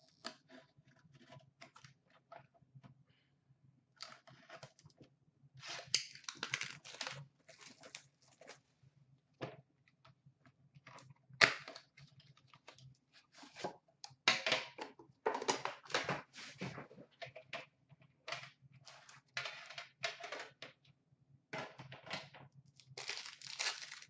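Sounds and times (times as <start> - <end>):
packaging crinkling and tearing: 5.6 - 8.6, 22.8 - 24.0.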